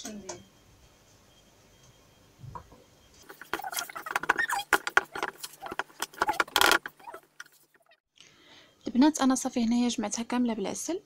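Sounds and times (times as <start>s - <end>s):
small squeaks: 2.6s - 8.0s
spoon scraping plastic bowl: 3.2s - 7.6s.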